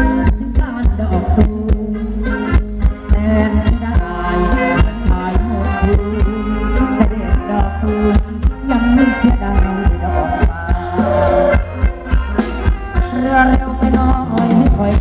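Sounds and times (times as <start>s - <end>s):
live band dance music: 0.0s - 15.0s
steady drum beat: 4.8s - 15.0s.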